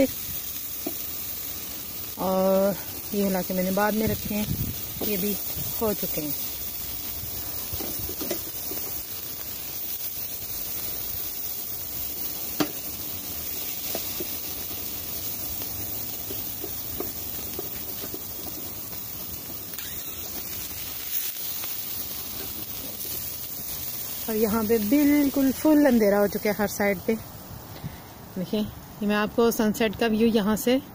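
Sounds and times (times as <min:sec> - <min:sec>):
meat sizzling on a grill: 0:00.0 - 0:30.9
light clicks on a grill grate: 0:07.7 - 0:09.0, 0:12.5 - 0:12.9, 0:13.6 - 0:14.5, 0:15.6 - 0:19.1.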